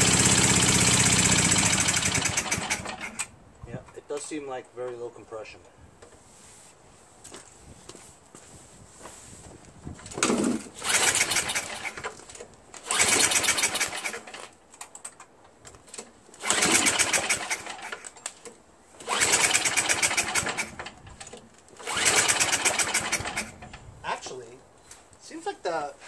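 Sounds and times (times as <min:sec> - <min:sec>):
recoil starter engine cranking whirr: 0:00.0 - 0:03.3, 0:10.2 - 0:12.2, 0:12.8 - 0:14.5, 0:16.4 - 0:18.1, 0:19.0 - 0:23.7.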